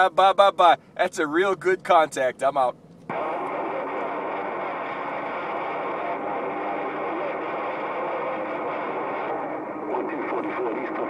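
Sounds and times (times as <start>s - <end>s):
distorted distant voices: 0.0s - 11.0s
radio static: 0.0s - 11.0s.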